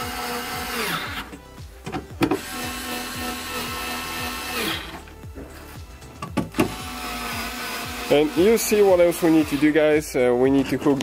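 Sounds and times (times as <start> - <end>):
power driver motor running: 0.0 - 1.4, 2.2 - 5.2, 6.4 - 9.9.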